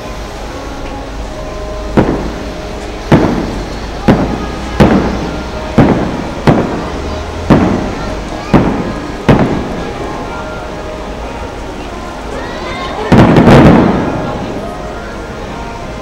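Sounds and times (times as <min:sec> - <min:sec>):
fireworks shells bursting: 0:00.0 - 0:11.0, 0:13.0 - 0:14.5.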